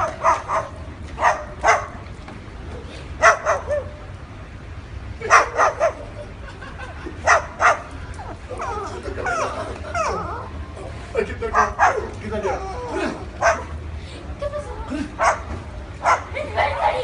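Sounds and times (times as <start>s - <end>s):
dog barking: 0.0s - 2.0s, 3.2s - 4.0s, 5.3s - 6.0s, 7.2s - 7.9s, 11.5s - 12.1s, 13.4s - 13.7s, 15.2s - 16.3s.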